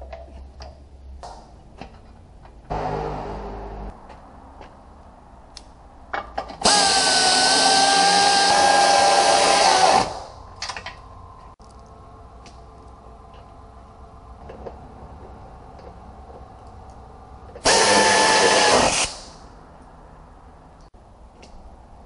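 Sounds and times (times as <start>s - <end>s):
air tool whining: 6.6s - 10.3s, 17.6s - 19.4s.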